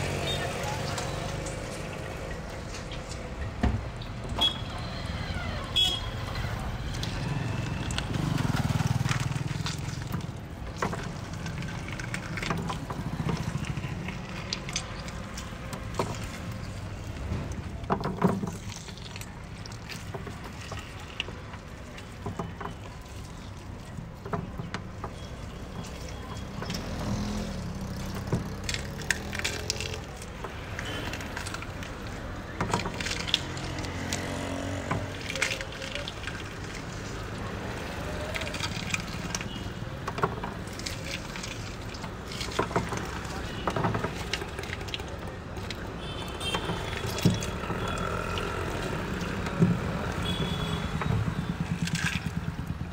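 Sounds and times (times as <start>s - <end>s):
traffic rumble: 0.0s - 52.9s
knocks and clatter: 38.3s - 45.8s.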